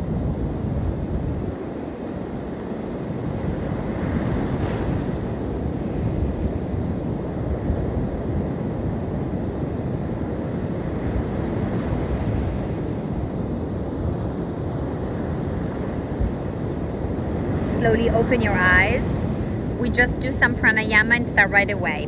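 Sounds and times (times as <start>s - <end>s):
sea surf washing onto beach: 0.0s - 22.0s
wind buffeting microphone: 0.0s - 22.0s.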